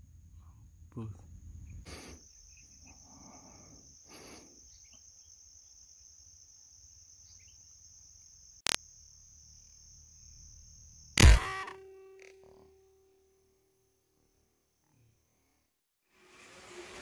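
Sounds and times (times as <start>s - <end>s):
high-pitched insect chirring: 1.9s - 15.7s
sharp click: 11.2s - 12.4s.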